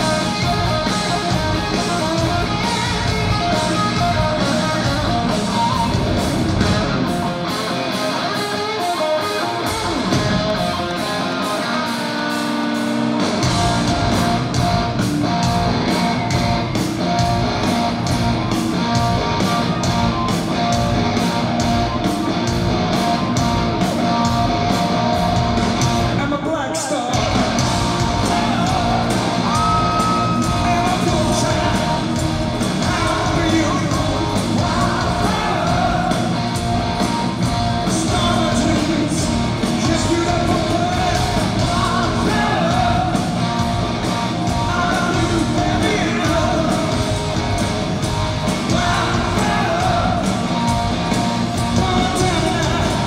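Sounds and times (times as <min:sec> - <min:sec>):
drums: 0:00.0 - 0:53.0
electric guitars: 0:00.0 - 0:53.0
person singing: 0:28.1 - 0:36.4.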